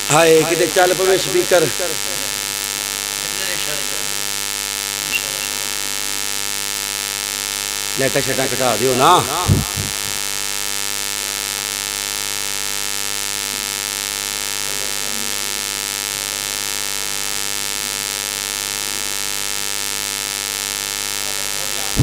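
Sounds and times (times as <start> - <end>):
electrical mains hum and buzz: 0.0 - 22.0.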